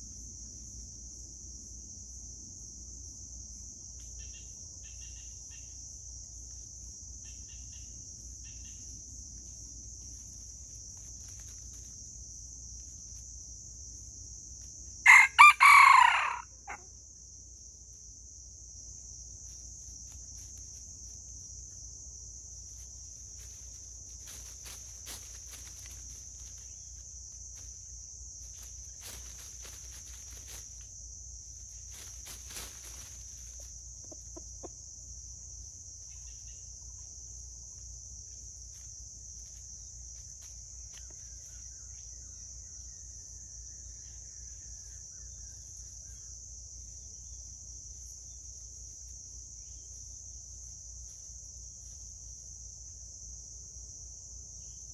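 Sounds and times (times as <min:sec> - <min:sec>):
crickets droning: 0:00.0 - 0:54.9
rooster crowing: 0:15.0 - 0:16.9.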